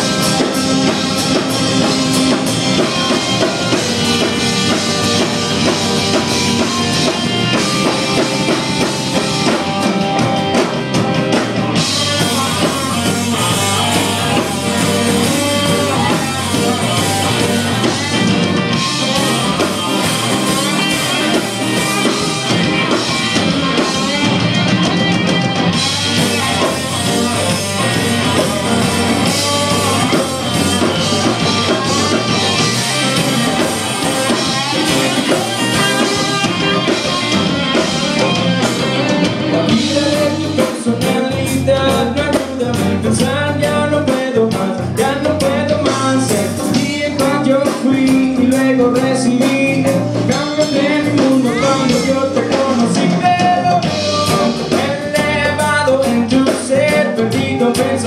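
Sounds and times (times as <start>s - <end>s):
drum kit: 0.0s - 58.0s
electric guitar: 0.0s - 58.0s
person singing: 25.8s - 58.0s.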